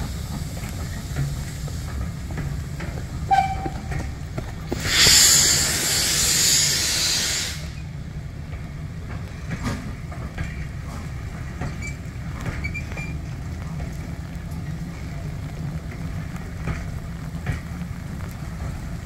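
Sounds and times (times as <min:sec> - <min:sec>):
locomotive steam hissing: 0:00.0 - 0:08.0
train coaches rumbling: 0:00.0 - 0:19.0.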